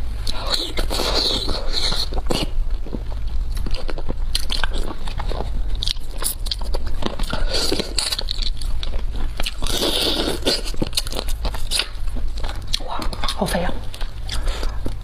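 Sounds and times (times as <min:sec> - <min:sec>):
crab shell crunching: 0:00.3 - 0:15.0.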